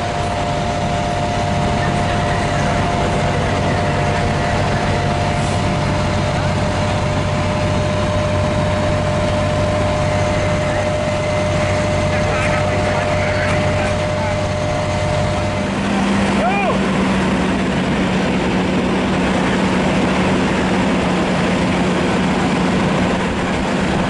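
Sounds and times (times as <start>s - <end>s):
diesel engines running: 0.0s - 24.0s.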